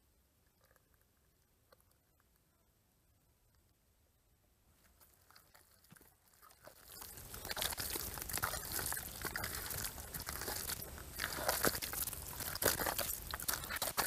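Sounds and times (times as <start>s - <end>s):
hands squelching wet mud: 4.9s - 14.0s.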